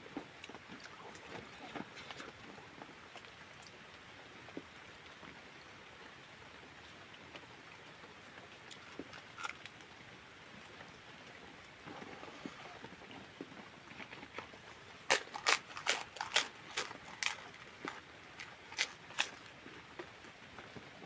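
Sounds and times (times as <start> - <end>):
wet chewing: 8.7 - 9.8, 13.9 - 20.1
fingers mixing rice: 15.1 - 19.5.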